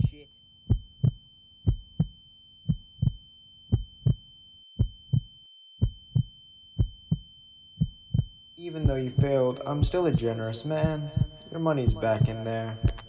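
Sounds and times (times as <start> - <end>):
high-pitched tone: 0.0 - 2.1, 8.5 - 13.0
heartbeat thumps: 0.0 - 4.2, 4.8 - 13.0.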